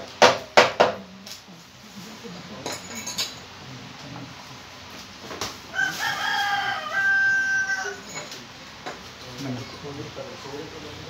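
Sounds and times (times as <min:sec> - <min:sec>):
tools clinking and knocking: 0:02.6 - 0:03.5, 0:08.0 - 0:09.0
rooster crowing: 0:05.7 - 0:08.4.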